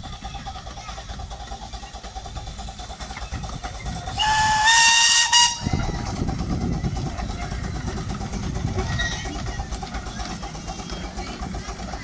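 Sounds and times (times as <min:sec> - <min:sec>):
train running rumble: 0:00.0 - 0:12.0
steam whistle blast: 0:04.2 - 0:05.7.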